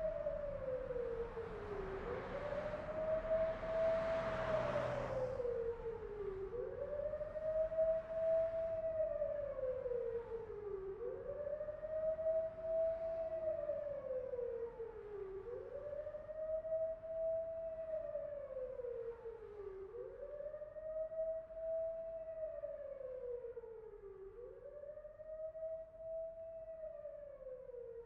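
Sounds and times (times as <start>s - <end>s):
siren wailing: 0.0s - 28.0s.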